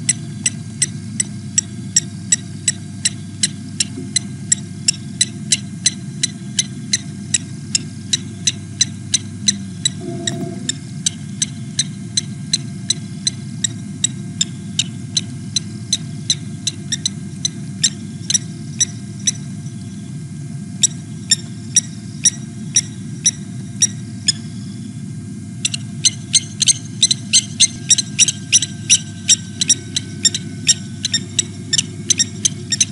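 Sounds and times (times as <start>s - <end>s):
steady low hum: 0.0s - 32.9s
bird alarm calls: 25.6s - 32.9s.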